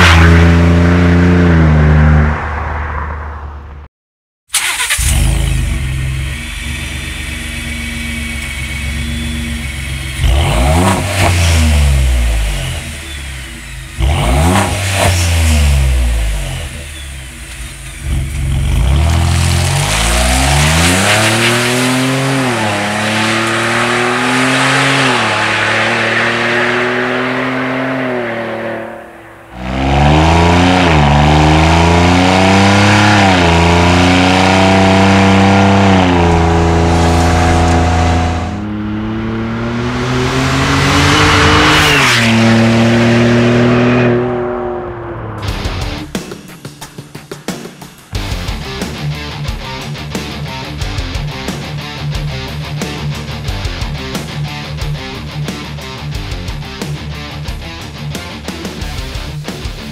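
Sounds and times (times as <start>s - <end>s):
truck engine accelerating hard: 0.0s - 3.4s, 4.6s - 46.1s.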